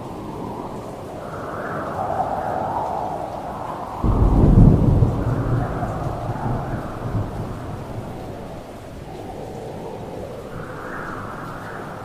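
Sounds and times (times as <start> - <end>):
steady rain: 0.0 - 12.0
thunder clap and rumble: 3.9 - 12.0.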